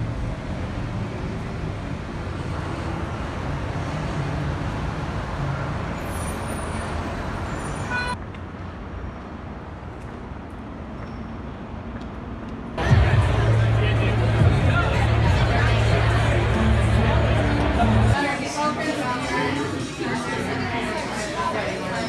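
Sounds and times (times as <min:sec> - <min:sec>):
passing cars and buses: 0:00.0 - 0:22.0.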